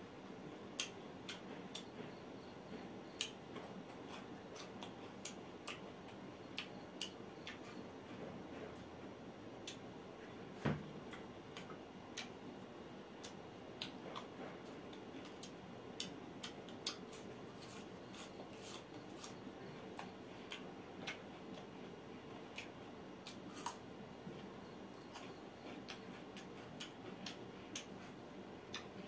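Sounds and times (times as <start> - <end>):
chewing mouth clicks and smacks: 14.9 - 21.7.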